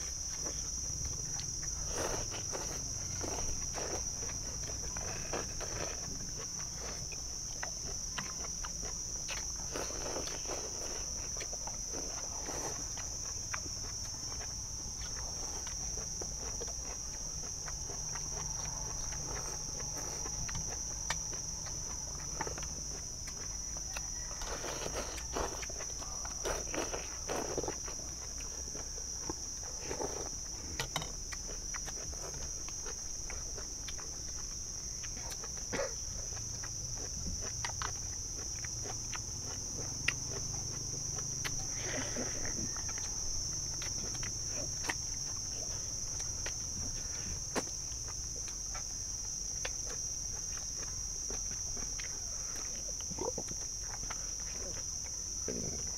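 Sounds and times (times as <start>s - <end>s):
insects chirring: 0.0s - 55.9s.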